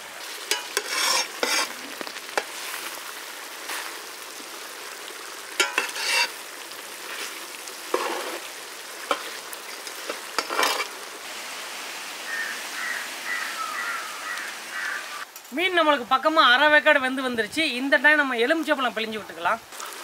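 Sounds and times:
gravy bubbling and hissing: 0:00.0 - 0:11.4
ladle scraping and knocking pan: 0:00.5 - 0:01.8, 0:05.6 - 0:06.4, 0:07.9 - 0:08.4, 0:10.0 - 0:11.0.

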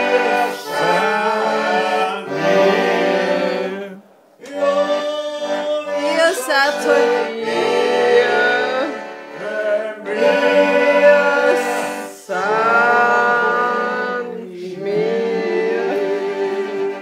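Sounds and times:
accordion: 0:00.0 - 0:17.0
man singing folk song: 0:03.8 - 0:10.2.

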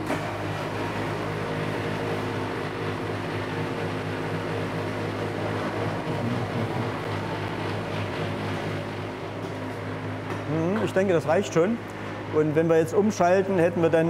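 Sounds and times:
shredder motor humming: 0:00.0 - 0:10.7.

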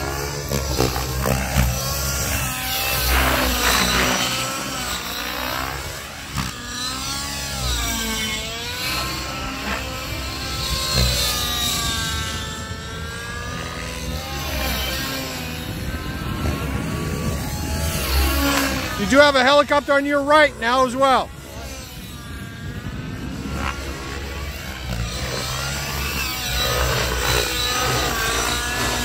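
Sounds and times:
model helicopter rotor whine: 0:00.0 - 0:29.0
wind rumble on microphone: 0:07.9 - 0:19.1, 0:21.3 - 0:29.0.

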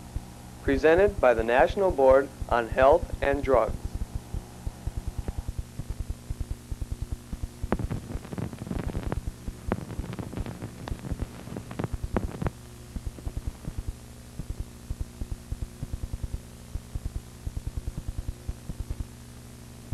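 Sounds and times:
film soundtrack hum: 0:00.0 - 0:19.9
rapid low thumps: 0:02.3 - 0:19.2
crackling clicks: 0:03.8 - 0:19.2.

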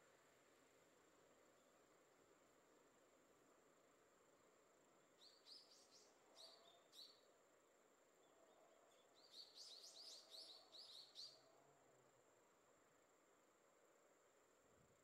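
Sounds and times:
songbird chirping: 0:05.0 - 0:07.4, 0:08.0 - 0:11.6.

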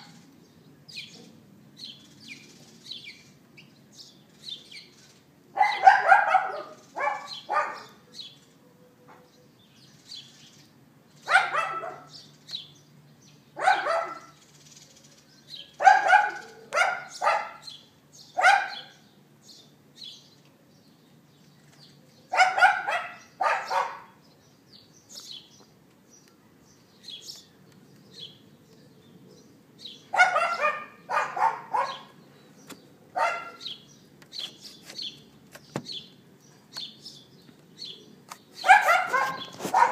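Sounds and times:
birds chirping: 0:00.0 - 0:39.9
dog barking: 0:05.6 - 0:08.0, 0:11.3 - 0:12.1, 0:13.6 - 0:14.4, 0:15.8 - 0:17.7, 0:18.4 - 0:19.0, 0:22.3 - 0:24.2, 0:30.1 - 0:32.2, 0:33.2 - 0:33.7, 0:38.6 - 0:39.9.

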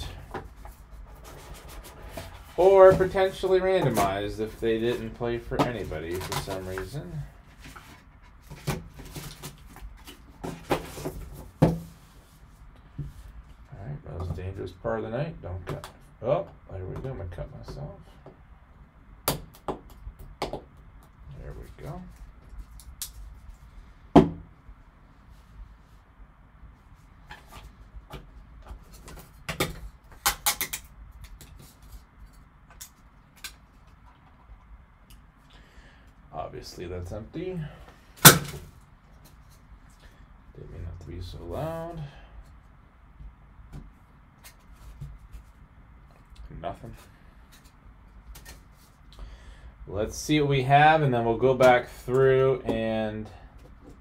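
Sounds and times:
sharp plastic clacks: 0:29.1 - 0:31.6.

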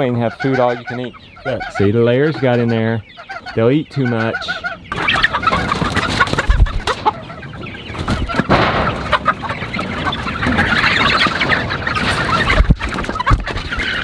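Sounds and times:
chickens clucking: 0:00.0 - 0:14.0
wings flapping: 0:04.9 - 0:07.2, 0:07.9 - 0:14.0.

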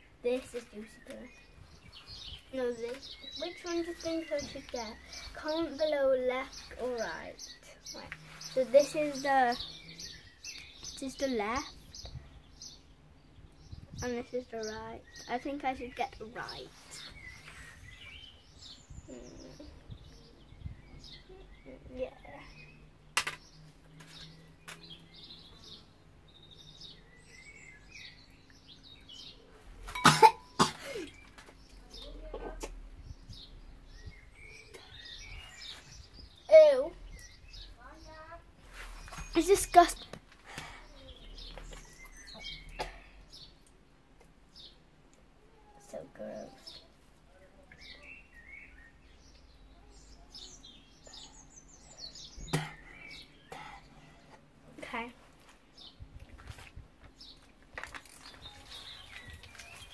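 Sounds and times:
small birds chirping: 0:00.0 - 0:59.9
child coughing: 0:30.0 - 0:31.1.

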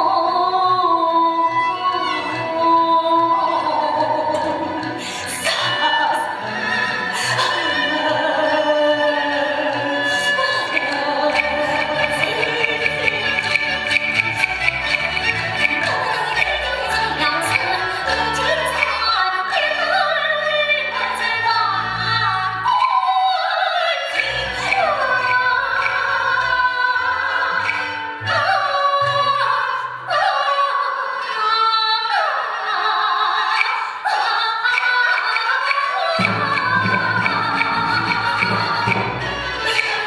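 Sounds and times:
opera band accompaniment: 0:00.0 - 0:40.0
woman singing opera: 0:00.0 - 0:40.0.

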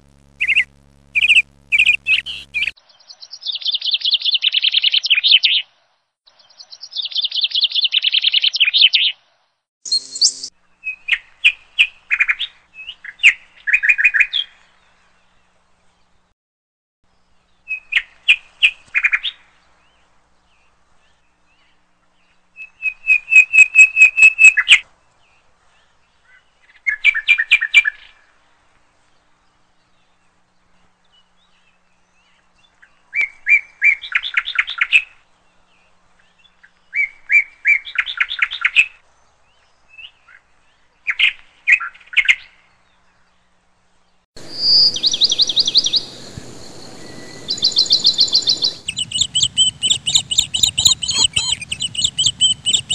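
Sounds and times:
small bird chirping: 0:00.0 - 0:05.6, 0:09.9 - 0:11.2, 0:44.4 - 0:52.9
high-pitched bird chirp: 0:00.1 - 0:02.7, 0:09.9 - 0:10.5, 0:44.4 - 0:52.9.

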